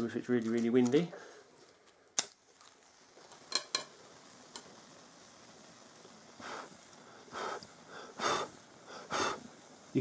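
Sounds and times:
match flaring and burning: 1.8 - 10.0
soft puff of breath: 6.4 - 9.8.

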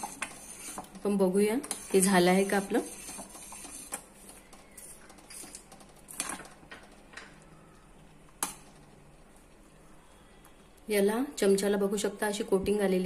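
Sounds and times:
spoon scraping a saucepan: 0.0 - 4.2.

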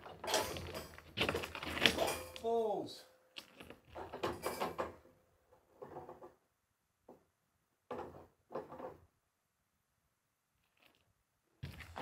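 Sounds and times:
muffled knocks and scrapes on steel: 3.9 - 6.4, 7.9 - 9.1.

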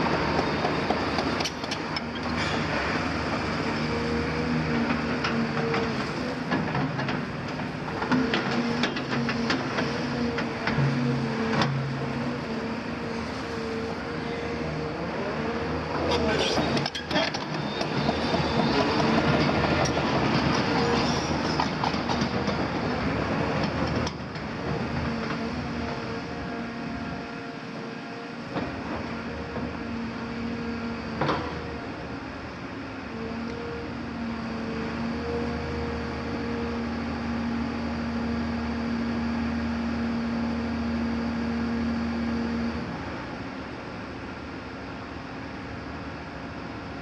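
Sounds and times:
excavator engine drone: 0.0 - 47.0
excavator tracks clattering: 16.0 - 23.0.

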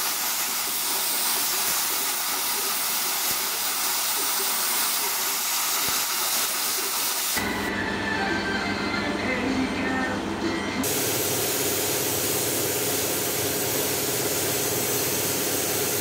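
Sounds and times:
welding arc hissing: 0.0 - 7.4, 10.8 - 16.0.

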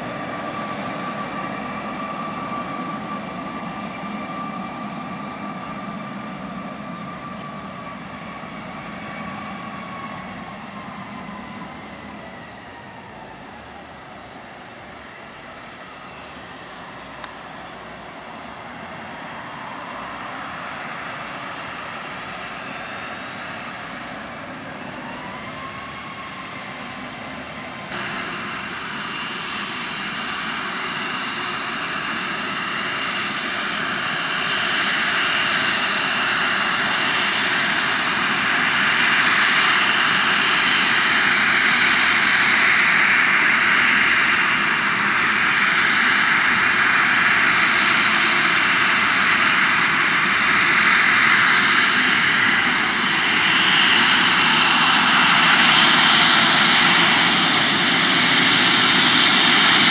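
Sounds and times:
jet engine roar with whine: 0.0 - 59.9.

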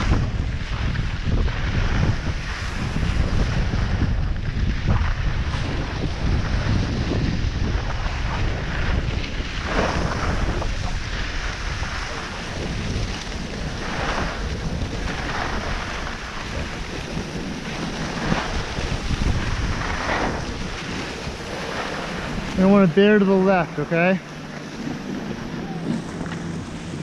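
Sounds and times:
skis scraping on snow: 0.0 - 27.0
wind buffeting microphone: 0.0 - 27.0.

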